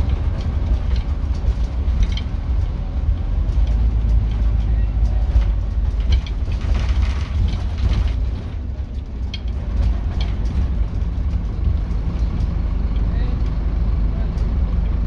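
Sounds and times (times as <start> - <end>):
interior fittings rattling: 0.0 - 13.1
bus diesel engine drone: 0.0 - 15.0.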